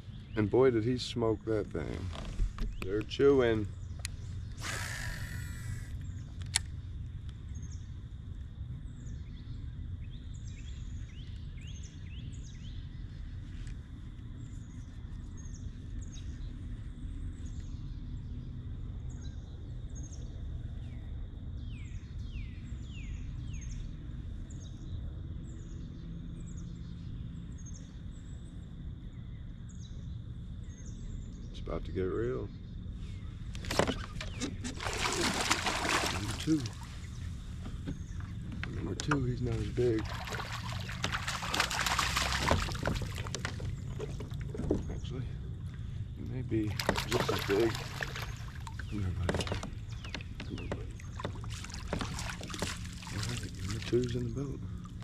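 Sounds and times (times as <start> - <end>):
birds chirping: 0.0 - 18.5, 21.6 - 55.0
steady low rumble: 34.8 - 55.0.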